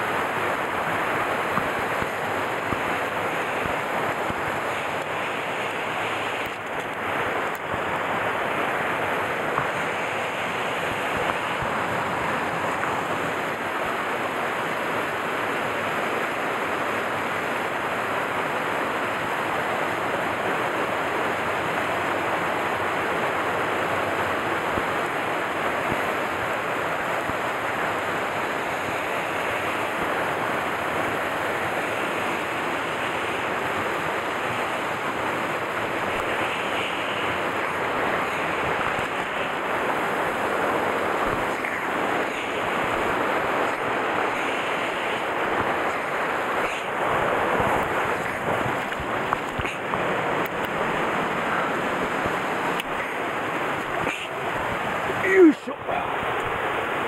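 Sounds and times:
stream rushing over rocks: 0.0s - 57.0s.

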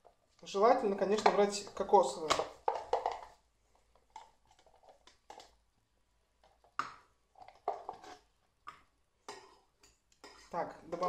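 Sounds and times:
jar handling knocks and scrapes: 1.0s - 5.6s, 6.4s - 11.0s.

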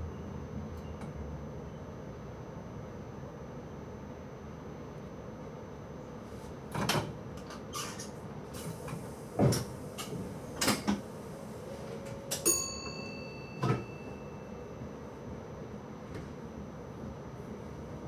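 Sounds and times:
electric train hum: 0.0s - 7.6s, 8.2s - 18.0s
knocks and clunks in train cab: 8.8s - 11.1s, 11.9s - 15.0s, 16.0s - 16.4s.

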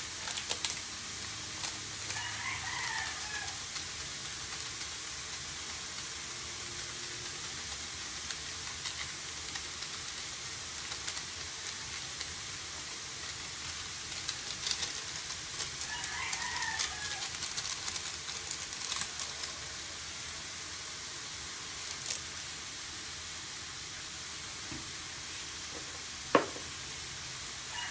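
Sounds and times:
vegetables sizzling in a wok: 0.0s - 27.9s
rooster crowing: 2.1s - 3.6s, 15.8s - 17.5s.

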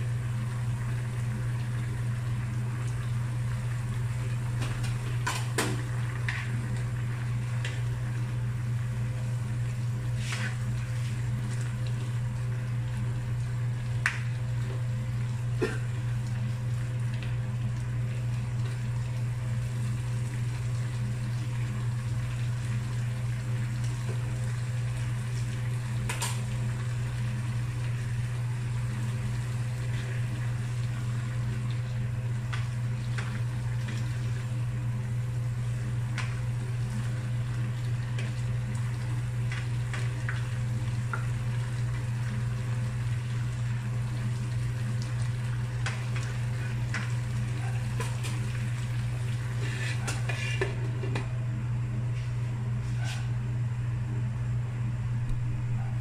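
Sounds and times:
steady low hum: 0.0s - 56.0s
spatula scraping a pan: 49.6s - 50.8s.

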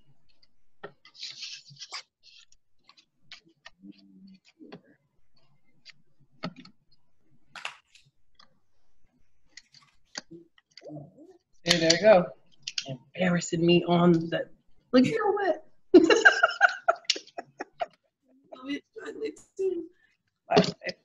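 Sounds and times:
paper rustling: 1.0s - 3.8s, 9.5s - 10.7s.

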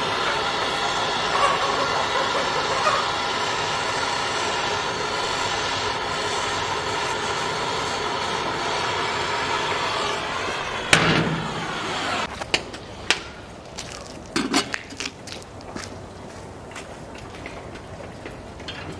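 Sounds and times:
gas torch flame hissing: 0.0s - 12.3s.

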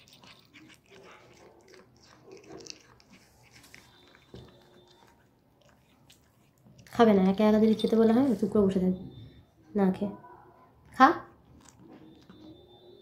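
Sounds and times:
cat chewing: 0.0s - 7.0s, 11.5s - 12.4s.

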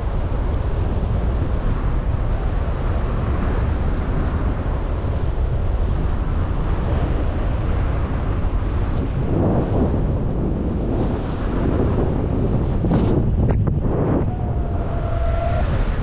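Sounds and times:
wind noise on microphone: 0.0s - 16.0s.

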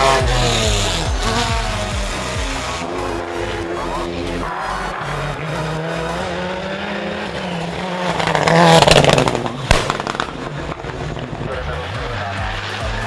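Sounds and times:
rally car engine passing: 0.0s - 13.0s
exhaust crack and crackles: 7.7s - 13.0s.

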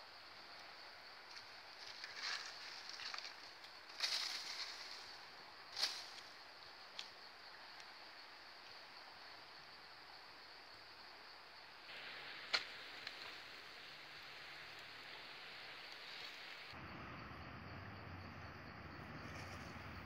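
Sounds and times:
campfire crackling: 0.0s - 9.7s, 11.8s - 16.8s
high insect drone: 0.0s - 20.0s
fire hissing: 11.8s - 16.8s.

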